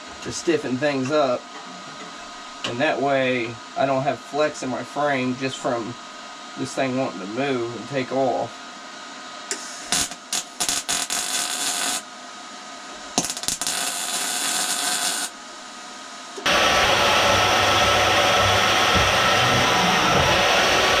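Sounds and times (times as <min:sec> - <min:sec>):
arc welding crackle: 0:09.5 - 0:12.1, 0:13.0 - 0:15.4
band saw cutting steel bar: 0:16.4 - 0:21.0.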